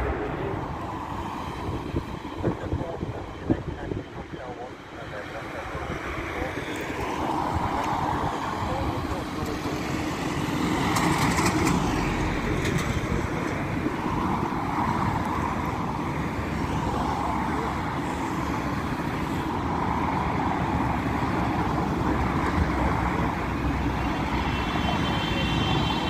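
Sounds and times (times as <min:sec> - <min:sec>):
jet engines rumbling at idle: 0:00.0 - 0:26.0.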